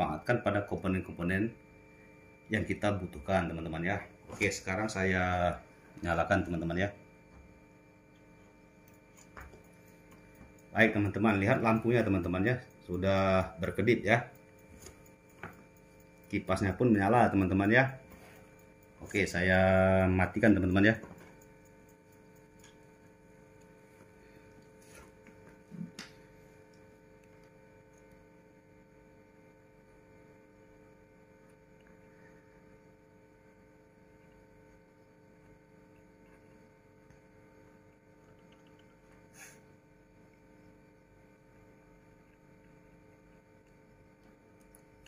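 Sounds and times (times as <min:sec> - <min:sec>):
faint electrical hum: 0:00.0 - 0:45.0
faint ticks: 0:08.2 - 0:28.3.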